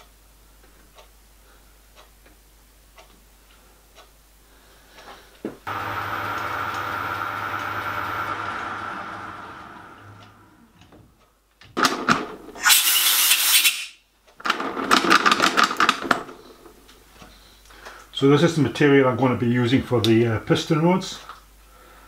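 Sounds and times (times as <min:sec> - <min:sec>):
lathe motor humming: 0:05.7 - 0:10.8.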